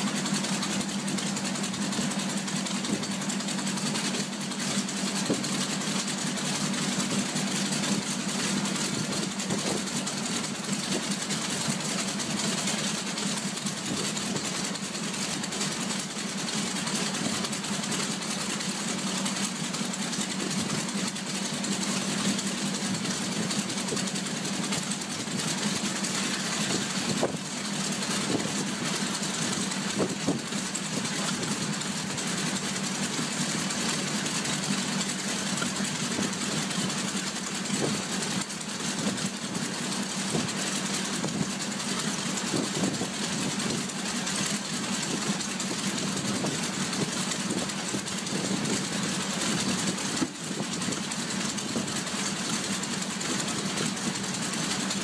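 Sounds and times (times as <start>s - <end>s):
aircraft engine idling: 0.0s - 55.0s.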